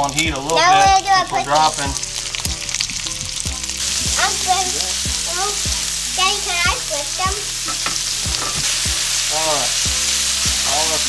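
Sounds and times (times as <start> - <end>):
fish sizzling in butter: 0.0 - 11.0
soft knocks: 7.7 - 8.9.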